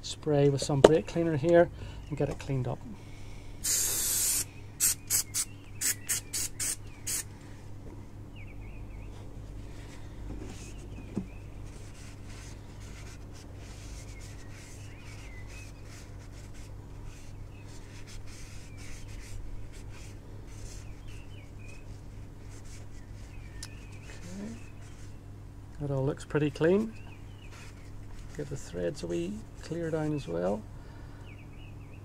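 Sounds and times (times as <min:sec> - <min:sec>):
steady low hum: 0:00.0 - 0:32.0
small birds chirping: 0:03.0 - 0:32.0.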